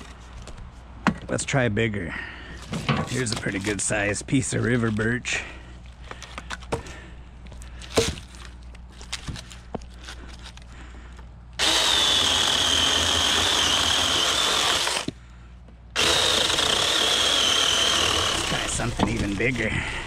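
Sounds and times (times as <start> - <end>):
branches knocking and clattering: 5.8 - 10.7
electric chainsaw whining: 11.6 - 15.1, 16.0 - 19.6.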